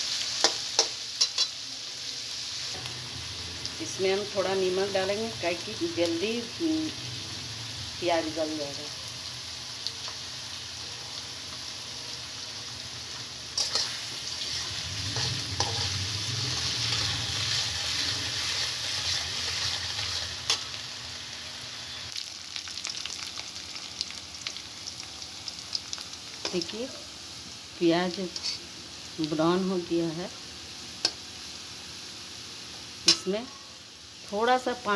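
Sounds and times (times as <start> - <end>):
onions sizzling in hot oil: 0.0 - 34.9
metal spatula scraping pan: 13.6 - 20.6.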